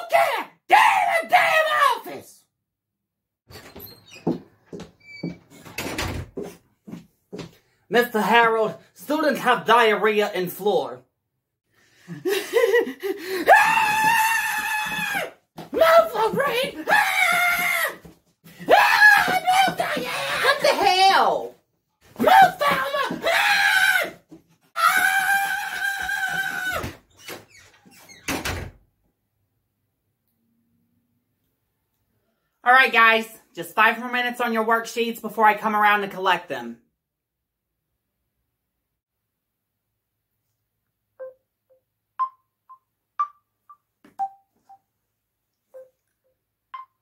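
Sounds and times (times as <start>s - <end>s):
phone ringtone melody: 41.2s - 44.9s, 45.8s - 46.0s, 46.8s - 47.0s.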